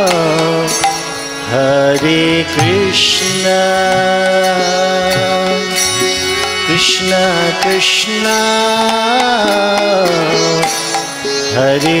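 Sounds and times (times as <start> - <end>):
harmonium chords: 0.0 - 12.0
drum strokes: 2.0 - 12.0.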